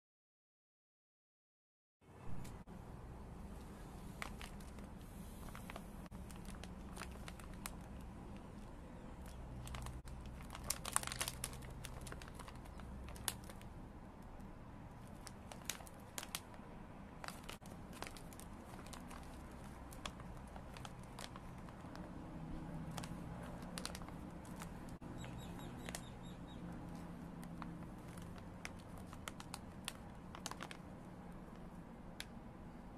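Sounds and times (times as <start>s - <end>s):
plastic snack pouch crinkling: 4.2s - 13.7s, 15.0s - 16.6s, 17.2s - 31.7s.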